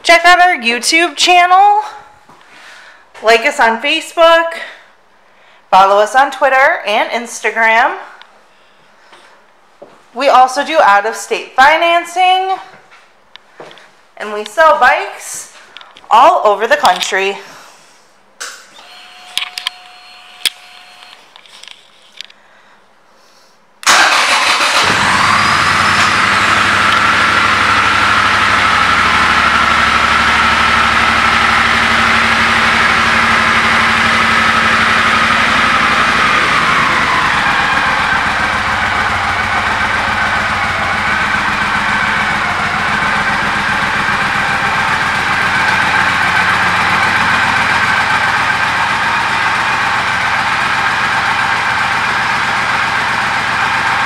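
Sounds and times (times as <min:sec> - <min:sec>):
motorcycle engine starting and idling: 0:23.8 - 0:54.0.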